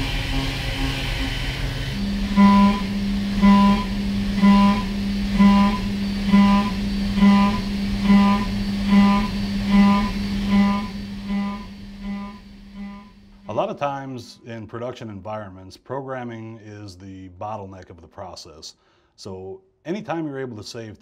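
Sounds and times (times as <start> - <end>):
cnc mill cutting steel: 0.0 - 13.5.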